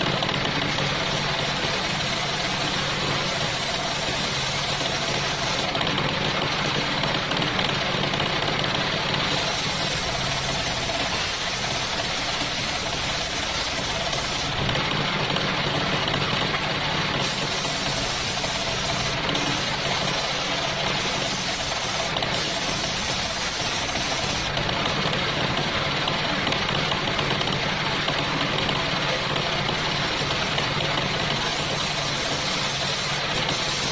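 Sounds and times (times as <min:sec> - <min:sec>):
saw blade cutting wood: 0:00.0 - 0:05.8, 0:09.2 - 0:14.8, 0:17.1 - 0:24.7, 0:29.4 - 0:33.9.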